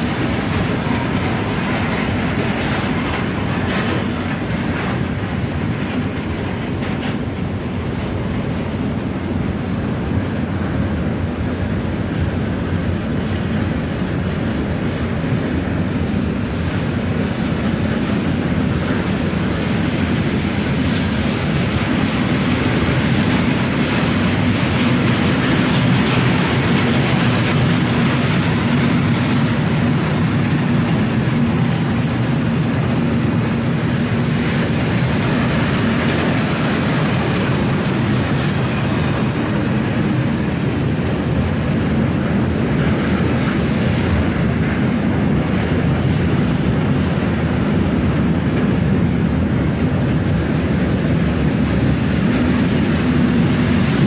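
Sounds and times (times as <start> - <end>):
freight train wheels on rails: 0.0 - 54.0.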